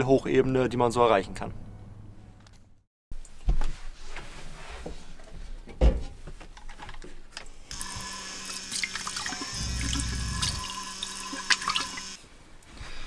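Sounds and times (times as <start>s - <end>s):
tap water running into sink: 7.7s - 12.2s
steady low hum: 9.4s - 11.4s.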